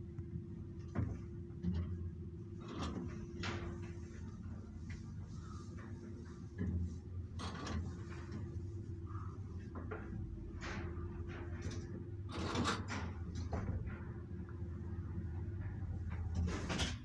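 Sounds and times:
lift clacks and rattles: 0.8 - 5.1, 9.6 - 17.0.

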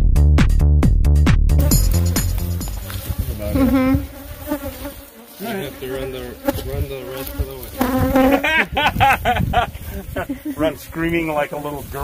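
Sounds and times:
bees buzzing: 1.6 - 8.8.

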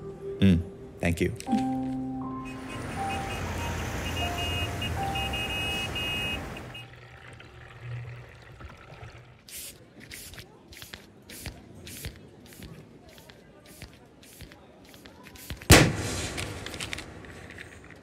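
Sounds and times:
traffic noise: 0.0 - 18.0
short high beeps: 1.5 - 6.9.

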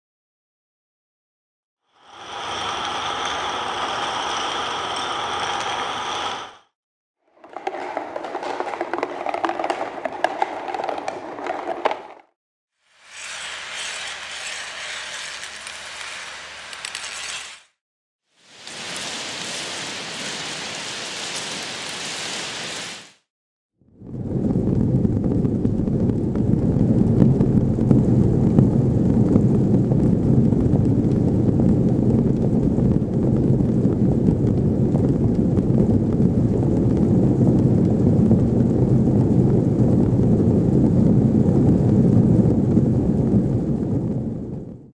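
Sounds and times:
cotton balls drumming on cardboard: 7.4 - 12.3.

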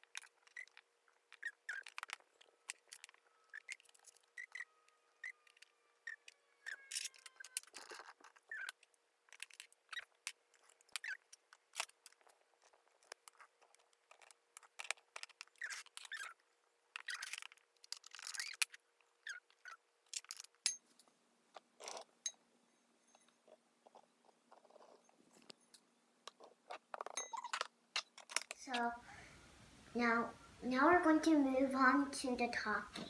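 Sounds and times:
water beads clicking and tapping: 0.0 - 16.4
short squeaks: 0.2 - 12.3, 13.3 - 16.4, 17.0 - 20.5, 26.4 - 28.7.

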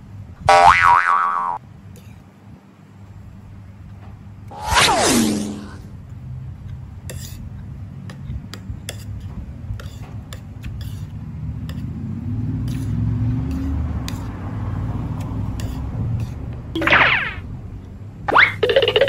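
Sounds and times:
low background rumble: 15.5 - 18.4.

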